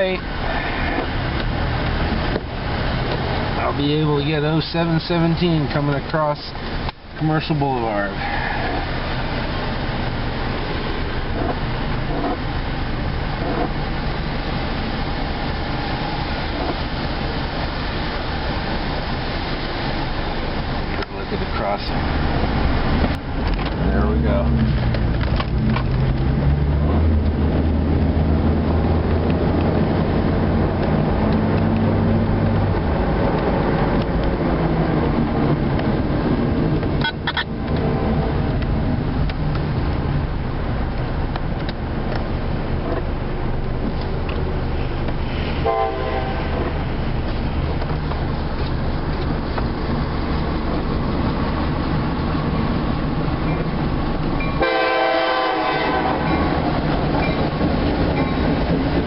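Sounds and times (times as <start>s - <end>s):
car engine and road noise: 0.0s - 59.0s
locomotive air horn: 45.4s - 46.7s, 54.5s - 56.5s.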